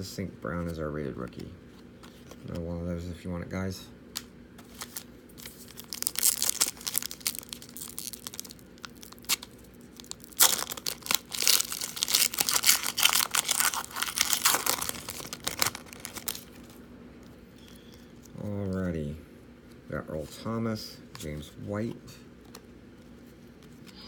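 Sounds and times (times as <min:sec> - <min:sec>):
foil wrapper tearing and crinkling: 0:04.7 - 0:16.8.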